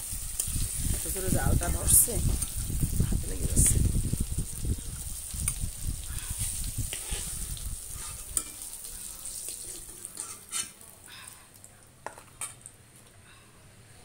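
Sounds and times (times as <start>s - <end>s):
oil sizzling: 0.0s - 12.8s
metal spatula scraping in wok: 6.3s - 10.9s.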